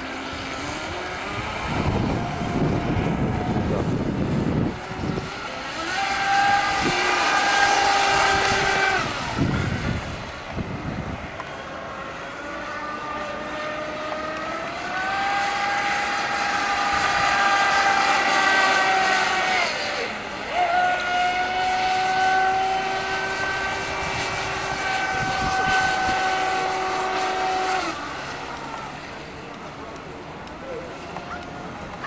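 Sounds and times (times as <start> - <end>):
electric motor whining: 0.0 - 31.2.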